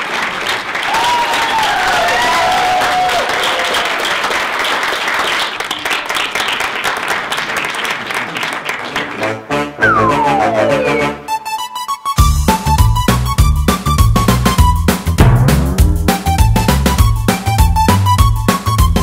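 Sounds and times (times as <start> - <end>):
audience applauding: 0.0 - 11.1
pitched call: 9.8 - 11.3.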